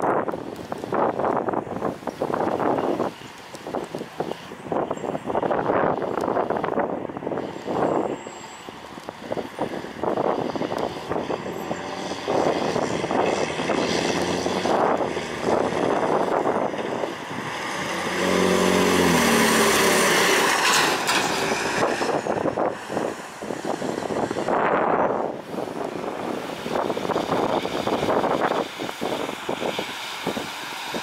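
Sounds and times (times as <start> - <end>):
wind buffeting microphone: 0.0 - 31.0
truck diesel engine passing: 7.1 - 31.0.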